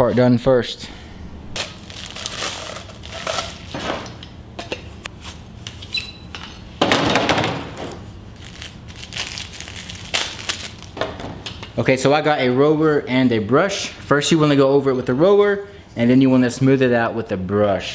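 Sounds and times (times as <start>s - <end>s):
plastic wrapping crinkling: 1.6s - 3.8s, 8.3s - 11.0s.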